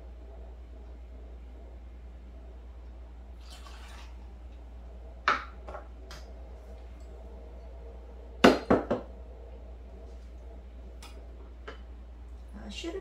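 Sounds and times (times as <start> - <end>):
liquid pouring: 3.4 - 4.6.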